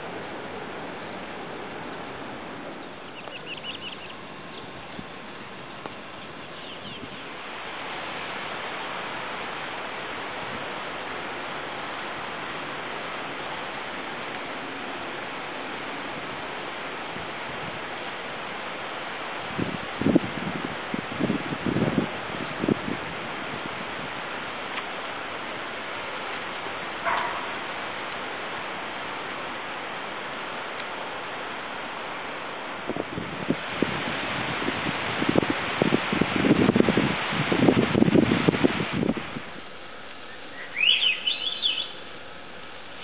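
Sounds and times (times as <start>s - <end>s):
outdoor background hiss: 0.0s - 43.0s
high short bird chirps: 40.3s - 42.0s.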